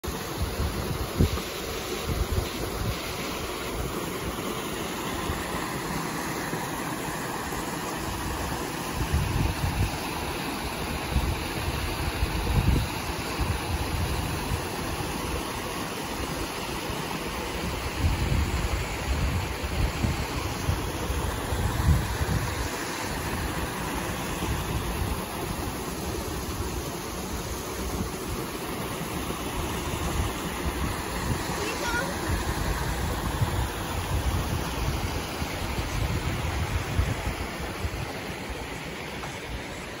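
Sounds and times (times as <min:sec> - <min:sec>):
water rushing over rock: 0:00.0 - 0:40.0
wind on microphone: 0:00.3 - 0:04.0, 0:08.9 - 0:10.0, 0:10.9 - 0:14.8, 0:17.6 - 0:28.4, 0:29.6 - 0:38.4.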